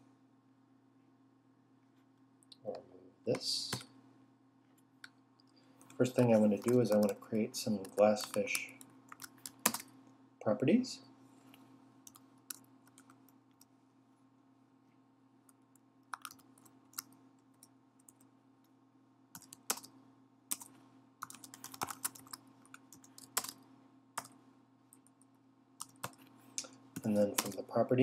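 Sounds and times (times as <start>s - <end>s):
faint steady hum: 0.0s - 28.0s
keyboard typing: 5.8s - 9.9s, 12.0s - 13.7s, 15.5s - 18.3s, 19.3s - 23.6s, 24.2s - 26.3s, 27.0s - 27.6s.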